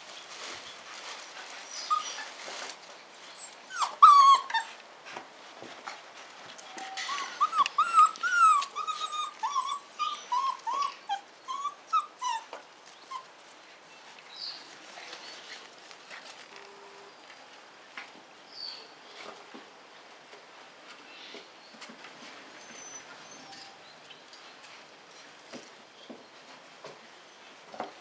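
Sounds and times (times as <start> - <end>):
puppy whining: 1.4 - 2.7, 3.3 - 4.8, 6.7 - 13.4, 22.6 - 23.9.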